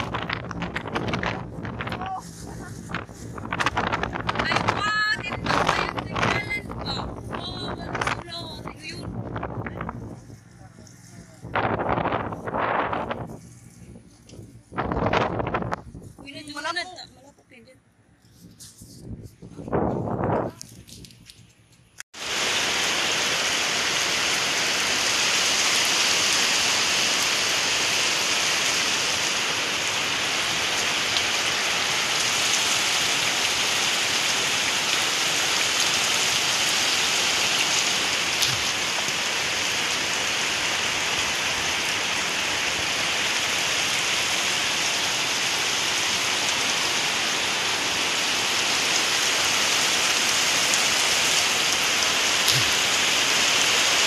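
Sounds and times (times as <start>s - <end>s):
heavy rain on ground and roofs: 0.0s - 10.2s, 22.2s - 54.0s.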